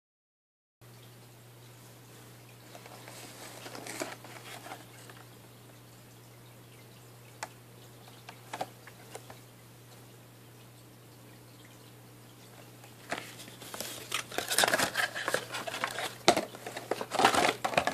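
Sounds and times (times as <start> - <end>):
box crinkling and scraping: 2.7 - 5.2, 13.0 - 17.9.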